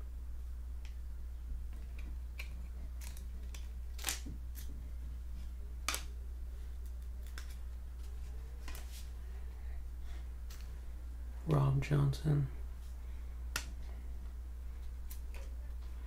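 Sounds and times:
steady low hum: 0.0s - 16.0s
cards clicking and snapping: 1.8s - 4.7s, 5.8s - 6.2s, 6.8s - 7.6s.

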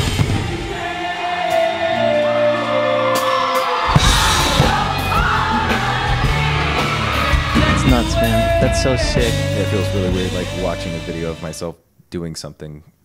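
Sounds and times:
crowd yelling and whooping: 0.3s - 9.5s
live song with singing: 0.3s - 11.3s.

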